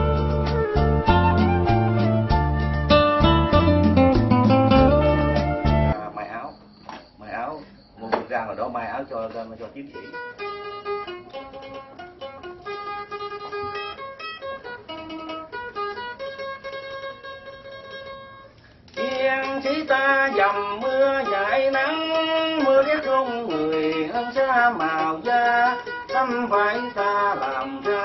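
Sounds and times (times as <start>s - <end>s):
person singing: 19.0s - 28.0s.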